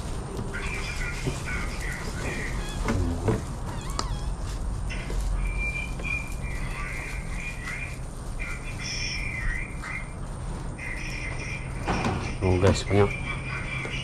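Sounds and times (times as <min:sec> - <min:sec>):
steady low rumble: 0:00.0 - 0:14.0
high wavering animal calls: 0:00.6 - 0:10.2, 0:10.8 - 0:11.9.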